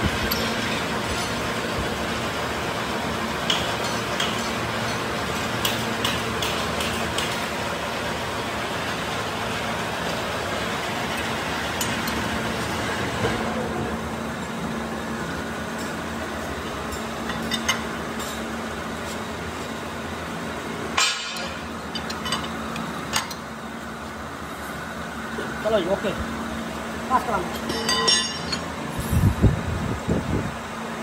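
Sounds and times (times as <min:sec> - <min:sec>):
hydraulic press humming: 0:00.0 - 0:29.8.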